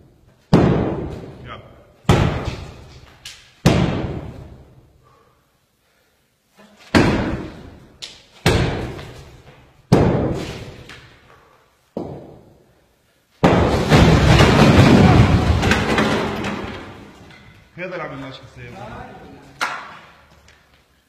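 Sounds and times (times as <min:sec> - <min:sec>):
sledgehammer striking block wall: 0:00.5 - 0:01.4, 0:02.1 - 0:02.9, 0:03.6 - 0:04.6, 0:06.9 - 0:07.8, 0:08.4 - 0:09.2, 0:09.9 - 0:10.8, 0:12.0 - 0:12.5, 0:13.4 - 0:17.1
masonry collapsing and rubble falling: 0:13.4 - 0:17.5.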